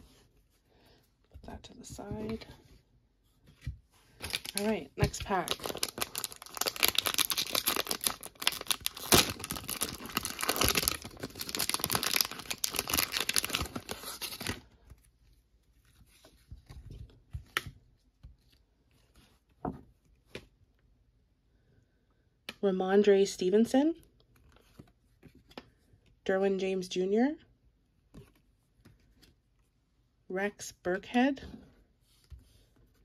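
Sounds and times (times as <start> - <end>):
foil wrapper tearing and crinkling: 4.3 - 14.6.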